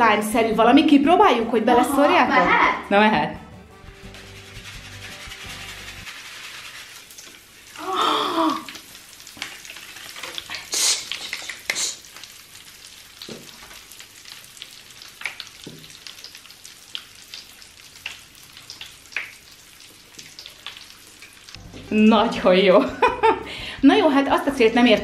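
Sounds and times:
popping powder crackling and fizzing: 4.1s - 21.6s
voice exclamation: 7.8s - 8.8s.

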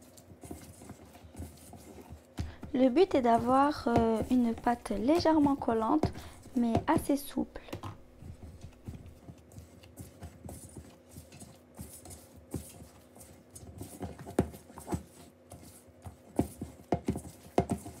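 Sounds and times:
dough thumping in bowl: 0.4s - 13.0s, 13.7s - 18.0s.

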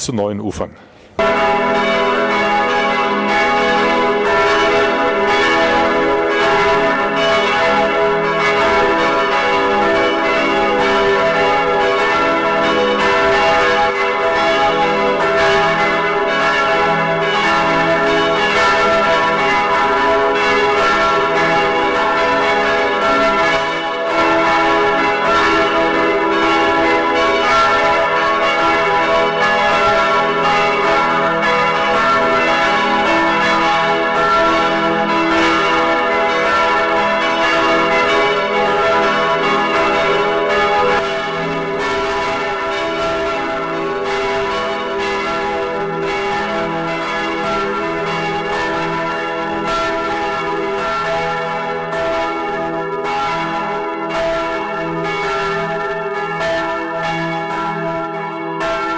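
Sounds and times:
church bells pealing: 1.2s - 58.9s.

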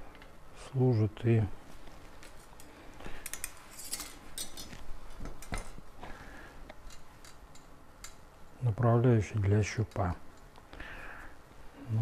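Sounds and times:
light metallic clinks and scrapes: 2.2s - 4.8s.

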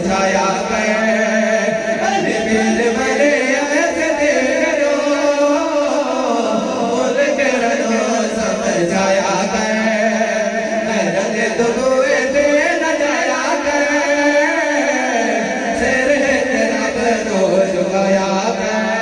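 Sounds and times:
men singing devotional song: 0.0s - 19.0s.

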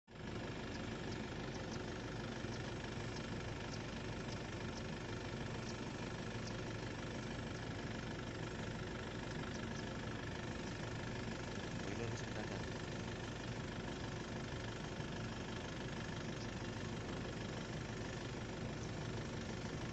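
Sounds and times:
steady engine hum: 0.1s - 19.9s.

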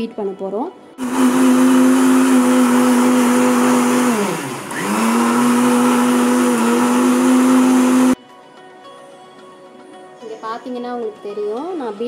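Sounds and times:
mixer grinder motor whine: 1.0s - 8.2s.

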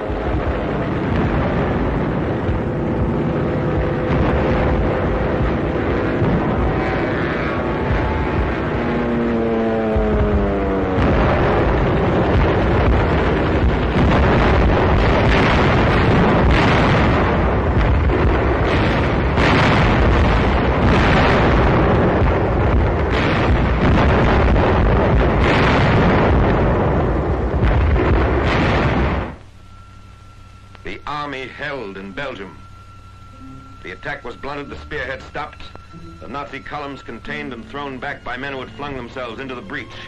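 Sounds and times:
artillery gunfire: 0.0s - 29.4s
explosions: 0.0s - 29.4s.

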